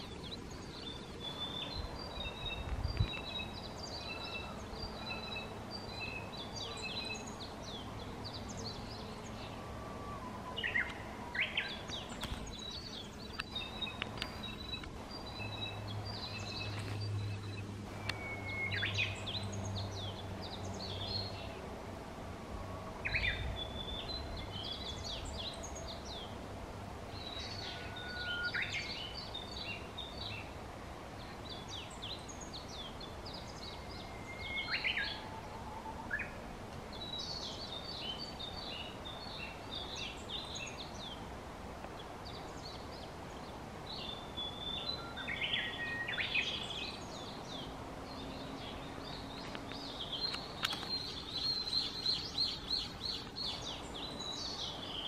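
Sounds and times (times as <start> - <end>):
songbirds singing: 0.0 - 55.0.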